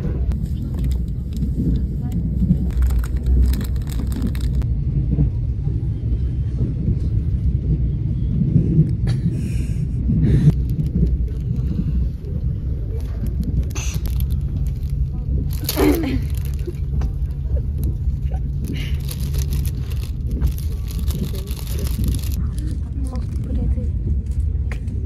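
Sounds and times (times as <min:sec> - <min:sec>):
train rumbling inside carriage: 0:00.0 - 0:25.0
plastic food wrapping crinkling: 0:00.6 - 0:01.8, 0:02.6 - 0:04.6, 0:13.0 - 0:23.4.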